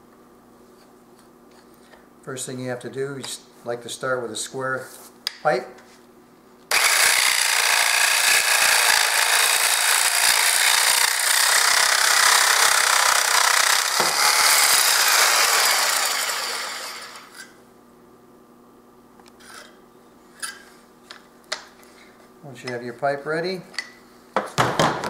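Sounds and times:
reciprocating saw cutting steel pipe: 0:06.7 - 0:17.6.

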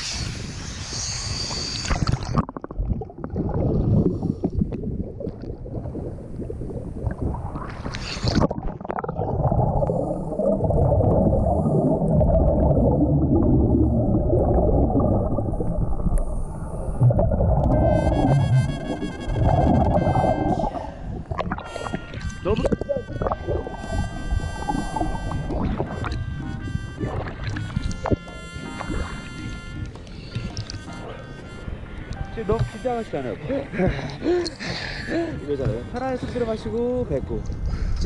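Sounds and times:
short hiss: 0:00.0 - 0:02.2
wind: 0:00.0 - 0:09.0, 0:15.1 - 0:38.0
underwater bubbling rumble: 0:00.0 - 0:32.8
water splashing: 0:00.8 - 0:37.0.

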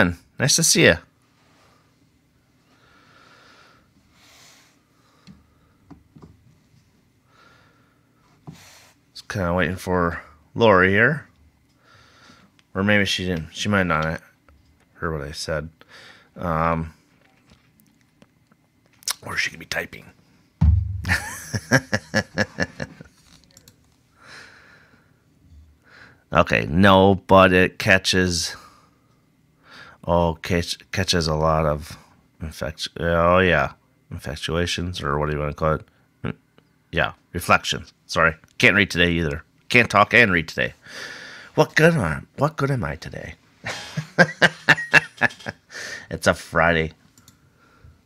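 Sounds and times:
faint breathing: 0:01.3 - 0:05.9, 0:07.2 - 0:09.0, 0:11.7 - 0:12.6, 0:15.8 - 0:16.4, 0:24.1 - 0:26.3, 0:28.5 - 0:30.0, 0:40.8 - 0:41.6, 0:45.7 - 0:46.1, 0:47.2 - 0:48.0
soft breath-like hiss: 0:02.6 - 0:05.8, 0:07.3 - 0:09.1.

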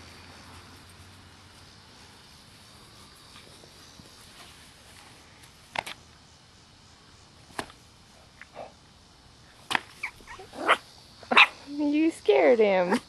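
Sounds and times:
puppy barking: 0:10.0 - 0:11.6.

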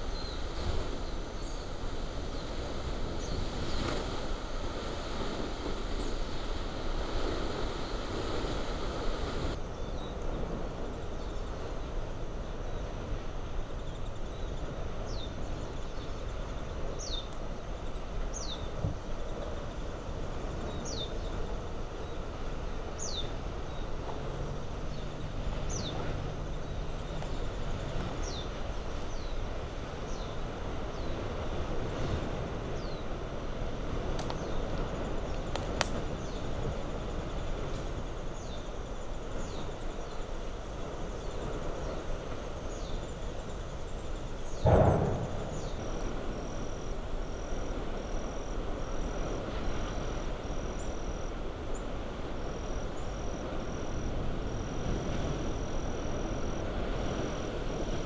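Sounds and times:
lava fountain jetting gas and spatter: 0:32.4 - 0:37.9.

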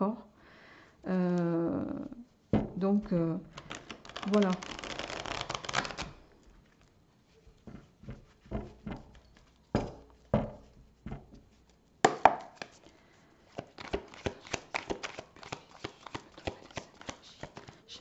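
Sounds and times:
cards shuffled by hand: 0:03.4 - 0:06.8, 0:12.4 - 0:18.0.

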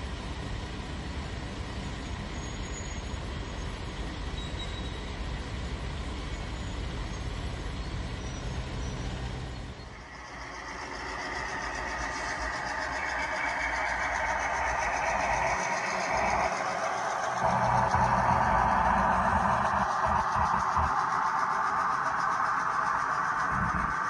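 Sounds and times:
low hum: 0:09.7 - 0:24.0
high hissing sound: 0:09.9 - 0:24.0.

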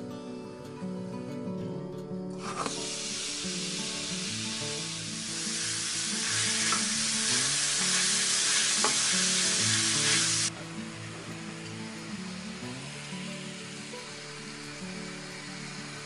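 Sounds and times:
soft background music: 0:00.0 - 0:16.0
meat sizzling in a frying pan: 0:02.4 - 0:16.0
tongs stirring meat in pan: 0:05.3 - 0:10.5.

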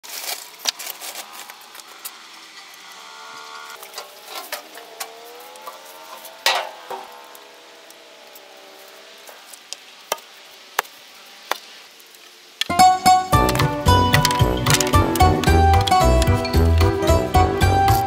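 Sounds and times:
wooden boards knocking: 0:12.7 - 0:17.0.

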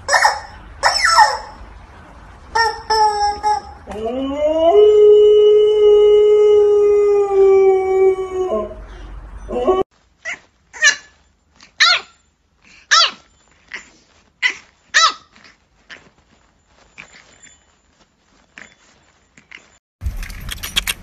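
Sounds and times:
puppy yipping: 0:00.0 - 0:01.6, 0:10.2 - 0:19.8
dog howling: 0:03.2 - 0:09.9.

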